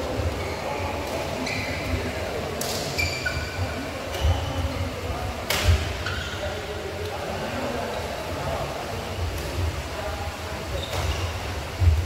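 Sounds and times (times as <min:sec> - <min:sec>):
sports hall noise: 0:00.0 - 0:12.0
shoe squeaks: 0:00.4 - 0:01.9, 0:02.9 - 0:03.6, 0:06.0 - 0:06.6, 0:10.8 - 0:11.4.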